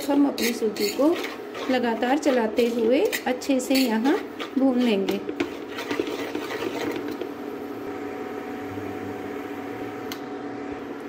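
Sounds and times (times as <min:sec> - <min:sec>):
spoon scraping a steel pan: 0:00.0 - 0:07.2
steady machine hum: 0:00.0 - 0:11.0.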